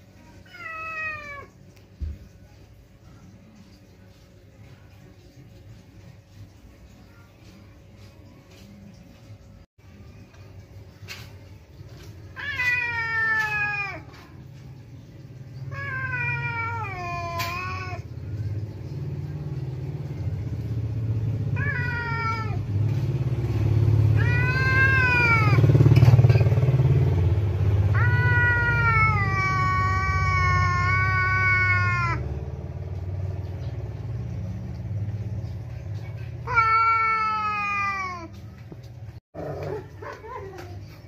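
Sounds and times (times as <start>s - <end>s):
cat yowling: 0.2s - 1.6s, 12.3s - 14.5s, 15.4s - 18.8s, 21.4s - 22.8s, 24.0s - 26.1s, 27.9s - 32.3s, 36.0s - 38.4s.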